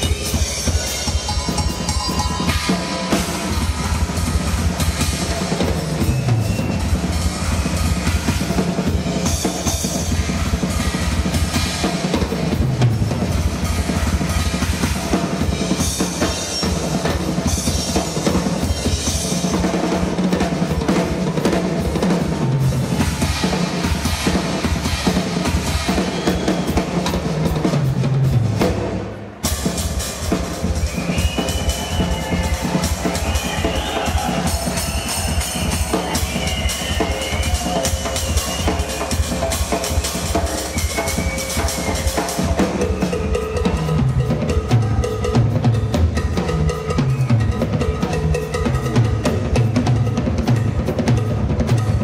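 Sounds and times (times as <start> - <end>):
cymbals ringing: 0.0 - 12.5
drum solo on acoustic kit: 0.0 - 52.0.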